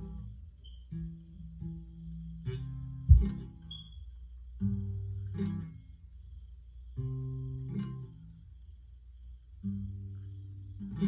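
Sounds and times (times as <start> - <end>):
acoustic guitar strumming chords: 0.0 - 8.6, 9.5 - 11.0
sharp low thump: 3.1 - 3.4.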